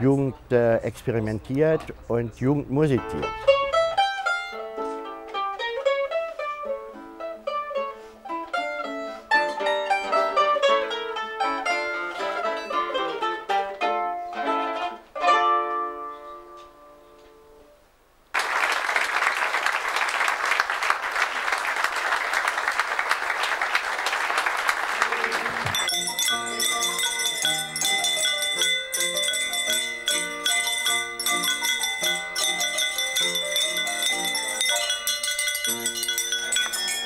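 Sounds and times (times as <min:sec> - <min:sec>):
mandolin and guitar duet: 0:02.9 - 0:17.6, 0:25.6 - 0:34.7
audience applause: 0:18.3 - 0:26.7
music with bright ringing tones: 0:25.7 - 0:37.0.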